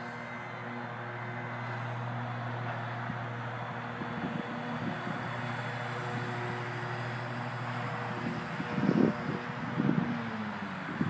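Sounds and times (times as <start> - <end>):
toy helicopter motor buzzing: 0.0 - 11.0
wind rumbling on microphone: 3.9 - 6.4, 7.0 - 11.0.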